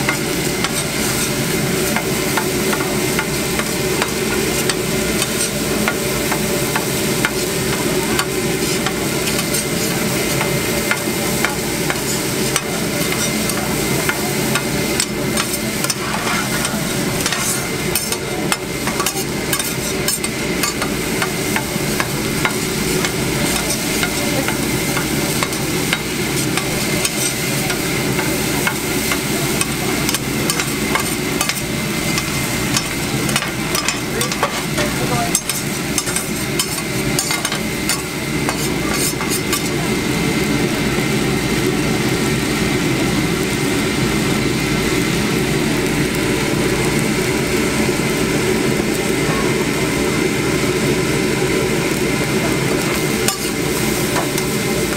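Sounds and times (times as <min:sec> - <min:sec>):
rice sizzling on a griddle: 0:00.0 - 0:54.9
metal spatulas scraping and clacking: 0:02.4 - 0:05.6, 0:08.2 - 0:21.0, 0:22.0 - 0:39.7, 0:53.3 - 0:53.6.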